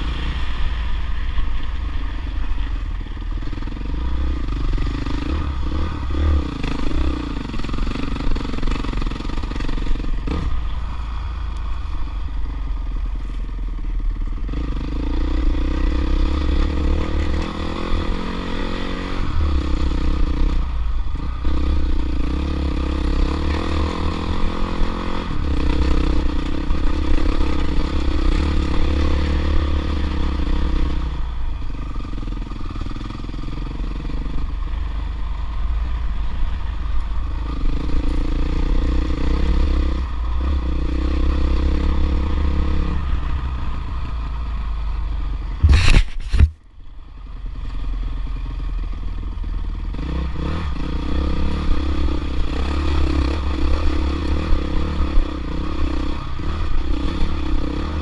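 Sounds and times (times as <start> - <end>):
dirt bike engine revving: 21.2 - 31.2, 49.9 - 58.0.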